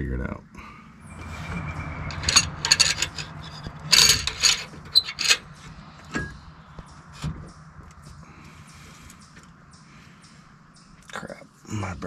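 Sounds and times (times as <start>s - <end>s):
low hum: 0.5s - 11.1s
metallic clicking and rattling: 1.4s - 6.4s.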